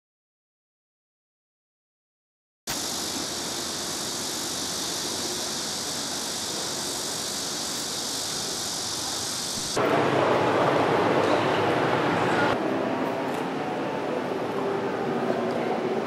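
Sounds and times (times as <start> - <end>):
outdoor background hiss: 2.7 - 10.1.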